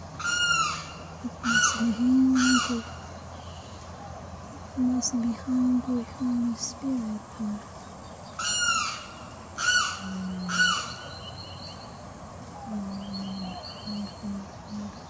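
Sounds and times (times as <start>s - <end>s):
bird calling: 0.0s - 15.0s
soft low notes: 1.2s - 8.0s, 12.4s - 15.0s.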